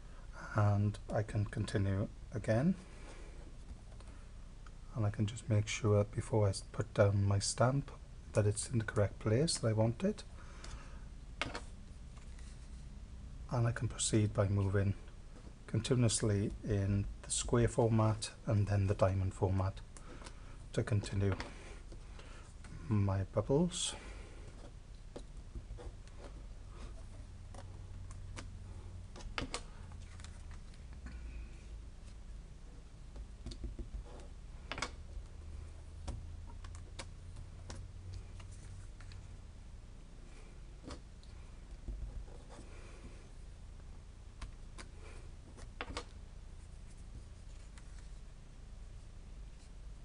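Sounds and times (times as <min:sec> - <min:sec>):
faint low hum: 0:00.0 - 0:50.0.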